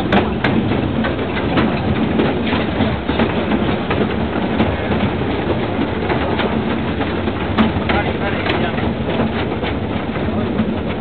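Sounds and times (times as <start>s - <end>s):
rattling metal clatter: 0.0s - 11.0s.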